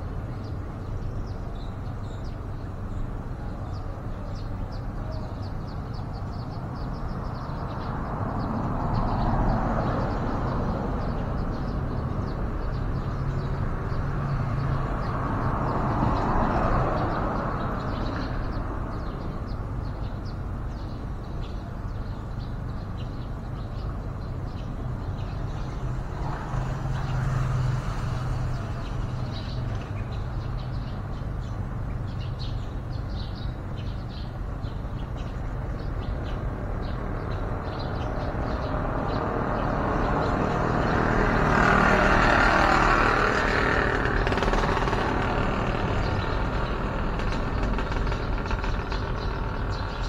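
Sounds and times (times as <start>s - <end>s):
road traffic rumble: 0.0s - 50.0s.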